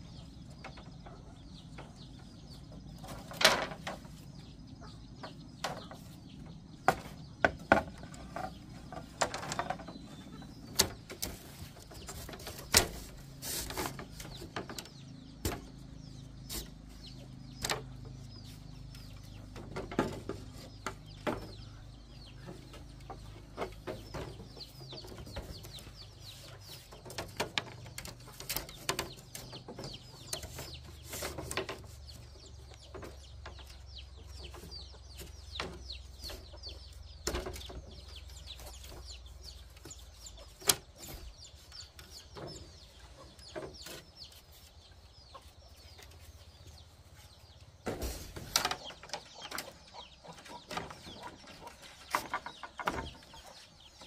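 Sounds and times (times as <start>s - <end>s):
chickens clucking: 0.0s - 54.0s
sharp knocks and clatter: 3.0s - 4.2s, 6.8s - 44.1s.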